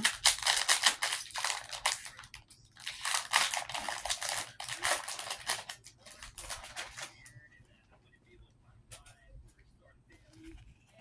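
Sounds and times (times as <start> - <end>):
cards and packaging rustling: 0.0 - 7.4.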